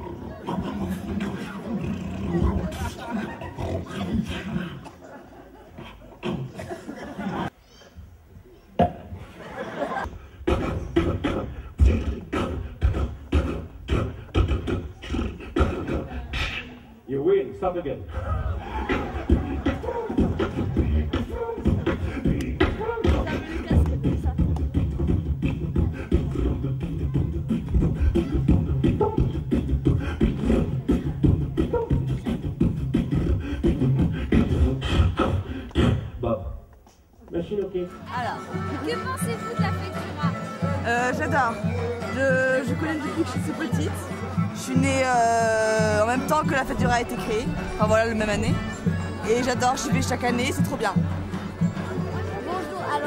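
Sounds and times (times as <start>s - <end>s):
rhythmic percussive beat: 9.9s - 16.7s, 18.5s - 36.1s, 37.9s - 53.0s.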